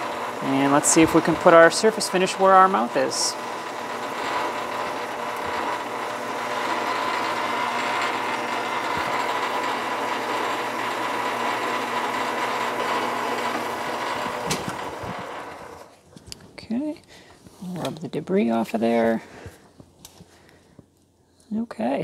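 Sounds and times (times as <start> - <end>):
metal lathe humming and whining: 0.0 - 15.9.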